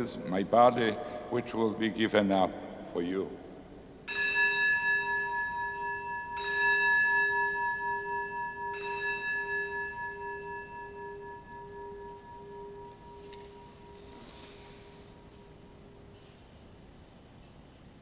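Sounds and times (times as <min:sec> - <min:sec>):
altar bell ringing: 0:04.0 - 0:16.2.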